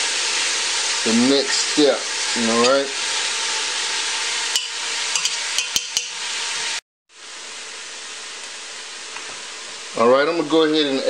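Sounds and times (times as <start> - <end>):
food sizzling in a pot: 0.0 - 11.0.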